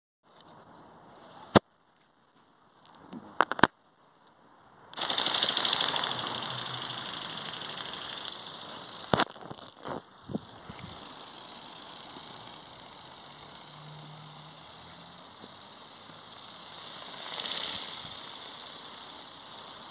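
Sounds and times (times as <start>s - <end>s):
toy bird wings buzzing flutter: 5.0s - 19.9s
toy clicks: 5.0s - 19.9s.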